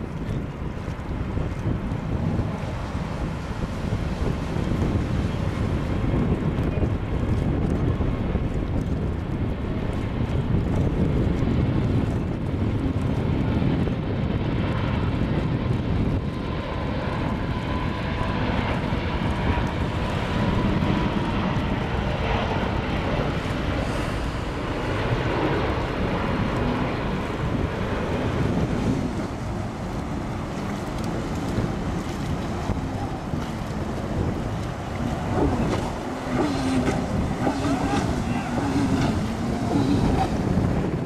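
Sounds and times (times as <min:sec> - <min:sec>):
jet engines rumbling: 0:00.0 - 0:41.0
faint jet whine: 0:13.9 - 0:41.0.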